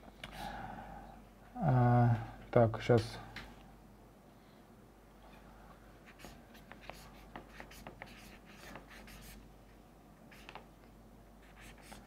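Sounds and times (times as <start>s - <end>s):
marker writing on paper: 6.0s - 9.4s, 10.3s - 10.6s, 11.4s - 12.0s.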